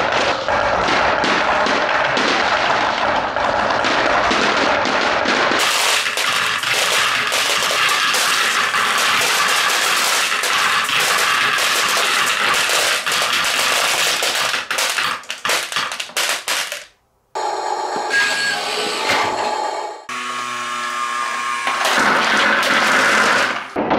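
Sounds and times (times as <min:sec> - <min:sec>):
glass marbles clattering: 0:05.5 - 0:16.9.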